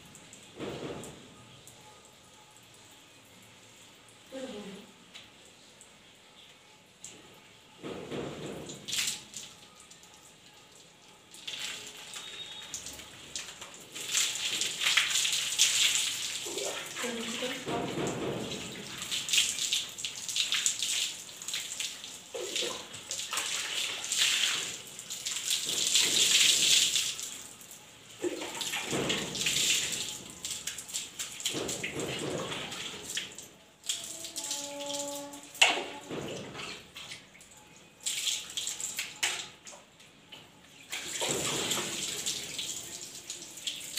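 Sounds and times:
water splashing on concrete floor: 8.2s - 10.1s, 10.7s - 39.9s, 40.8s - 43.9s
water poured over hair: 11.2s - 35.3s.

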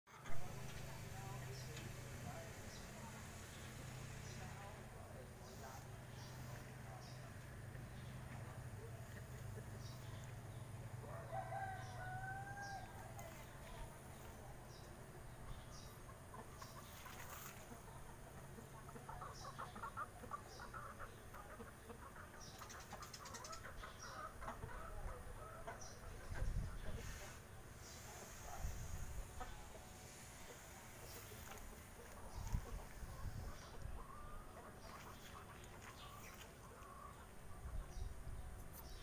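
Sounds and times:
rooster crowing: 11.0s - 13.2s
hens clucking: 15.5s - 37.9s.

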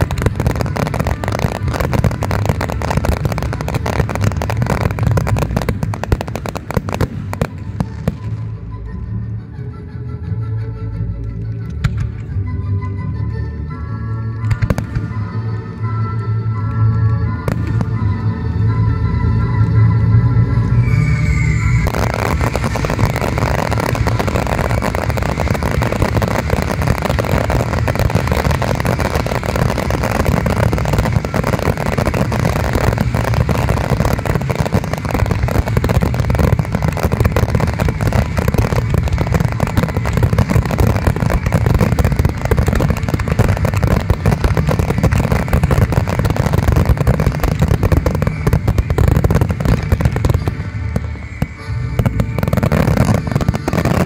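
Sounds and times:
fireworks bursts and crackle: 0.0s - 9.0s, 11.2s - 12.4s, 14.3s - 54.0s.

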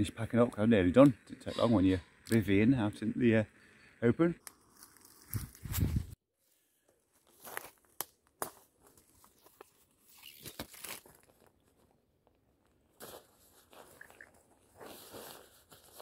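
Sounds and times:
twigs snapping: 7.6s - 8.6s, 10.2s - 11.4s
rustling of leaf litter: 13.1s - 16.0s.

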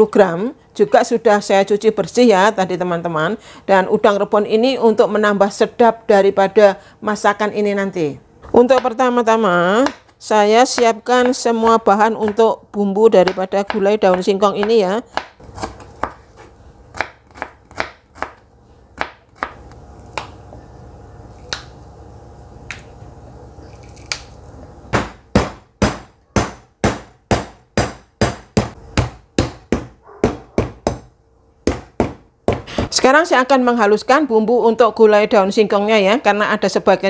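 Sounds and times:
knife chopping on plastic board: 13.2s - 16.2s, 17.0s - 18.4s, 25.0s - 32.9s.

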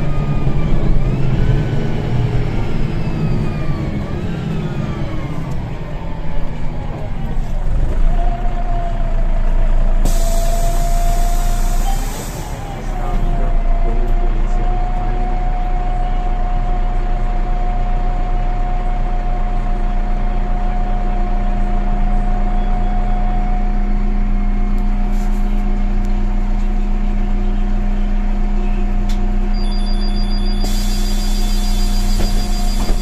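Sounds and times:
bus diesel engine idling: 0.0s - 33.0s
pneumatic door hiss: 10.0s - 12.5s, 30.4s - 33.0s.

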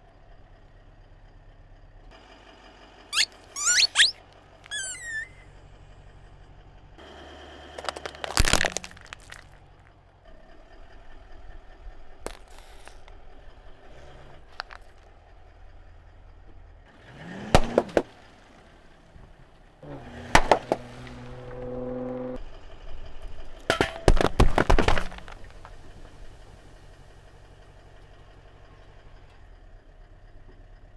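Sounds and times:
car engine idling: 0.0s - 30.9s
soda can bursting under tyre: 7.7s - 9.6s
tyre crushing balls: 7.7s - 9.9s, 23.7s - 26.0s
plastic tube cracking: 7.8s - 9.6s.

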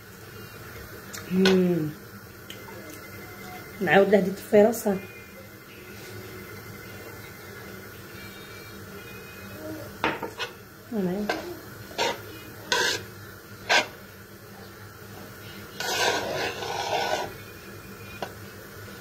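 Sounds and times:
scraping and rustling: 15.8s - 17.4s.

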